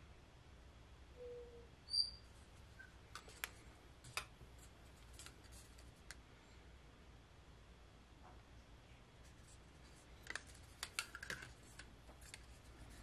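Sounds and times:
short high squeak: 1.2s - 2.3s.

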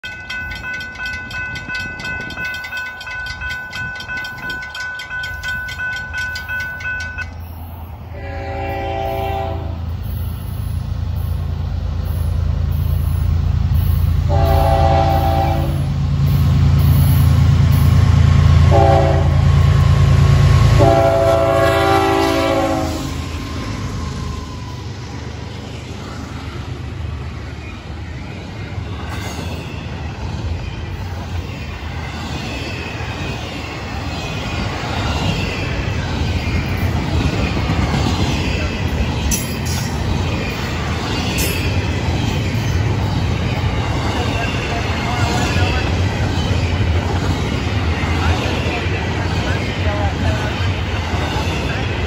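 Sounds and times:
railroad crossing bell ringing: 0.0s - 11.4s, 12.1s - 23.4s, 38.2s - 46.6s
diesel locomotive rumble: 0.0s - 52.0s
locomotive air horn: 8.1s - 9.8s, 14.3s - 15.9s, 18.7s - 19.5s, 20.8s - 23.1s.

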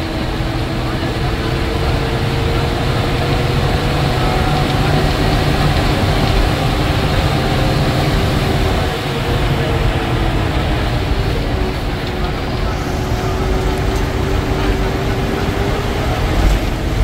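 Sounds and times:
bus diesel engine rumble: 0.0s - 17.0s
road noise: 0.0s - 17.0s.

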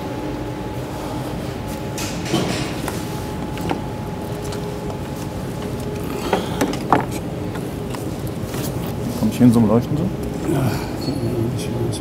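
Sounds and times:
steady workshop hum: 0.0s - 12.0s
clicks and knocks of plastic parts: 3.5s - 8.0s.

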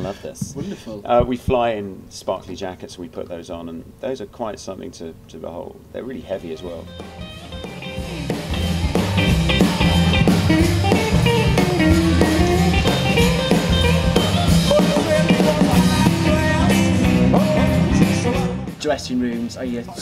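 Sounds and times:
drum kit: 6.4s - 20.0s
electric guitar: 6.8s - 18.7s
person singing: 14.6s - 18.8s.

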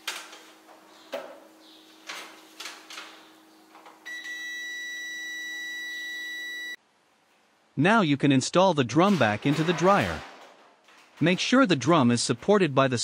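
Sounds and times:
multimeter continuity beep: 4.0s - 6.8s.

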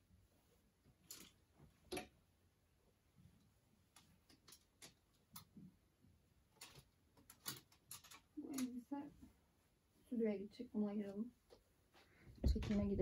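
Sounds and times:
hangers clicking on metal rail: 6.6s - 8.8s.

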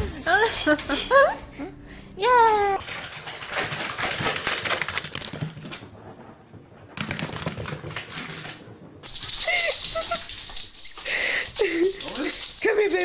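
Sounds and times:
dog claws scrabbling on wood floor: 2.8s - 5.9s.

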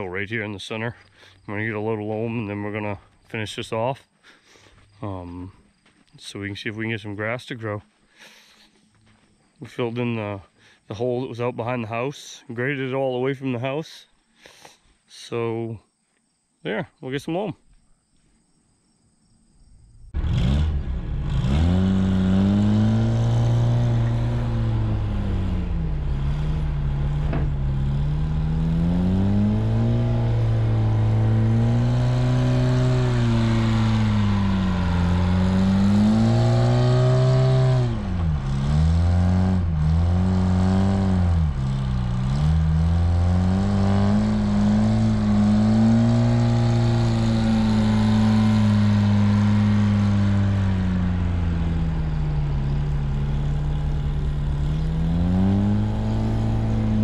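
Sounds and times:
front-end loader engine revving: 19.7s - 57.0s.

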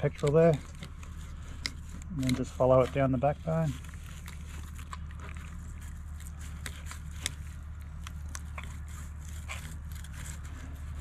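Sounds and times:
steady low hum: 0.0s - 11.0s
knife crunching through fish bones: 3.8s - 11.0s.

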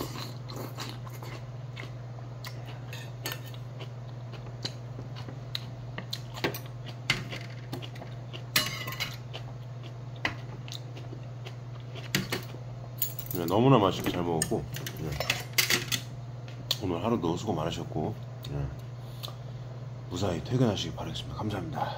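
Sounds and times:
spoon and metal bowls clinking: 8.6s - 9.2s.

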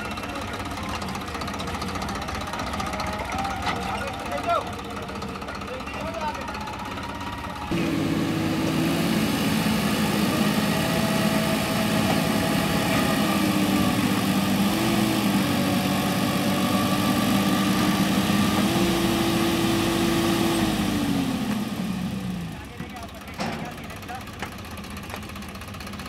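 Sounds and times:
tractor diesel engine under load: 0.0s - 26.0s.

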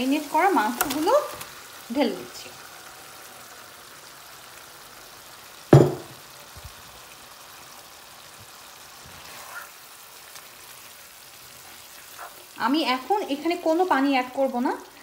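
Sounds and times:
meat sizzling in a pan: 0.0s - 15.0s
loud sudden knock: 5.8s - 6.1s.

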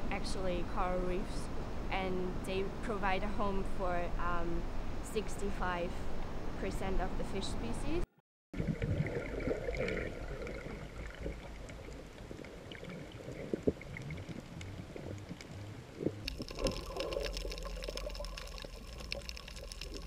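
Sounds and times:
faint steady hum: 0.0s - 20.0s
muffled underwater bubbling water: 8.6s - 20.0s.

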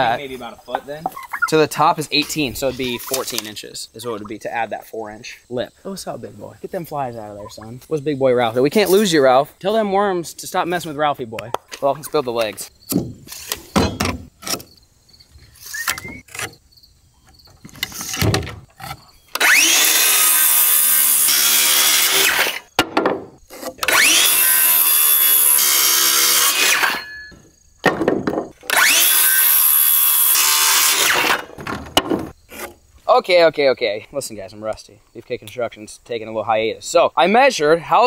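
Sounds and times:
circular saw cutting lumber: 17.9s - 22.7s, 23.5s - 27.4s, 28.6s - 31.6s, 32.5s - 32.8s
boards clicking and knocking: 22.8s - 23.9s, 27.8s - 28.7s, 31.5s - 32.3s.

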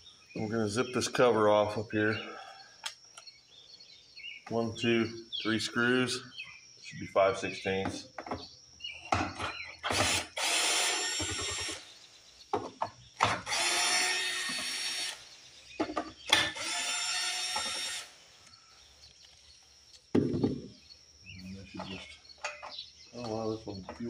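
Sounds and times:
cordless drill motor running: 9.8s - 11.8s, 13.2s - 15.3s, 16.3s - 18.2s.

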